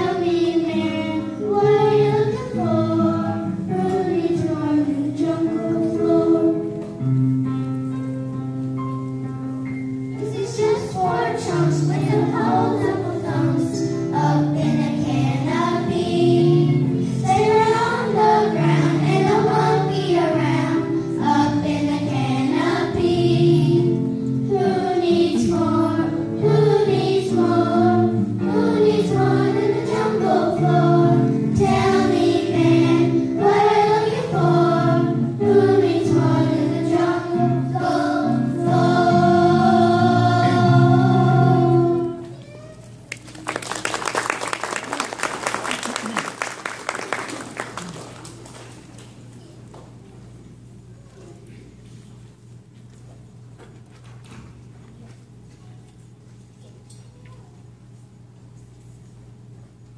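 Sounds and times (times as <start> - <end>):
children's choir singing: 0.0 - 7.0, 10.2 - 42.3.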